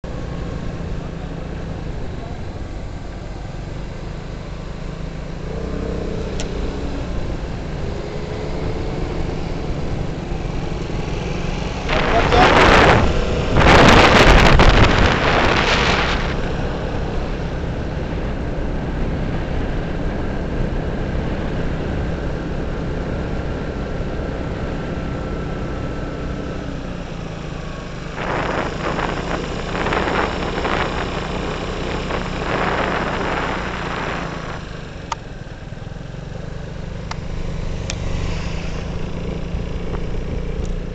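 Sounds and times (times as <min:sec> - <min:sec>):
motorcycle engine running: 0:00.0 - 0:40.9
loud rushing wind noise: 0:05.4 - 0:25.4, 0:28.0 - 0:35.2, 0:37.1 - 0:40.9.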